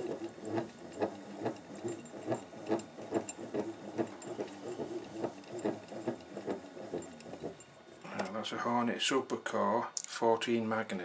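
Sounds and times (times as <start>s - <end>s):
alternator clicking: 0.0s - 8.4s.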